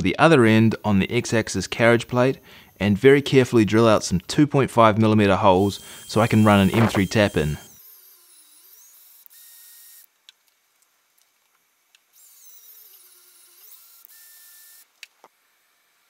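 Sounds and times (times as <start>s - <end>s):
power drill drilling metal: 0.6s - 4.5s, 5.4s - 10.1s, 12.2s - 14.9s.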